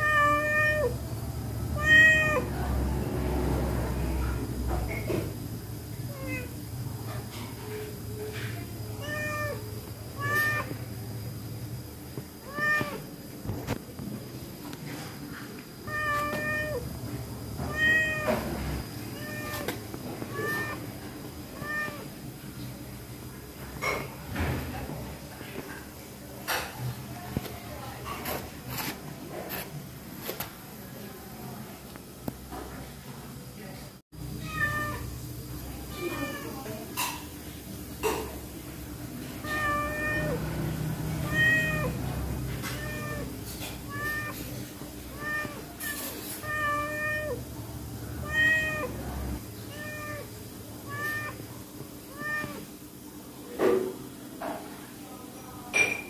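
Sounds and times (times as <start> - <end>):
cat meowing: 0.0 - 1.0, 1.8 - 2.5, 6.1 - 6.5, 9.0 - 10.7, 12.4 - 13.1, 15.8 - 16.9, 17.6 - 18.5, 19.1 - 20.9, 21.6 - 22.1, 34.3 - 35.1, 35.9 - 36.6, 39.4 - 40.5, 41.2 - 43.3, 43.9 - 47.4, 48.2 - 49.0, 49.7 - 51.4, 52.1 - 52.7.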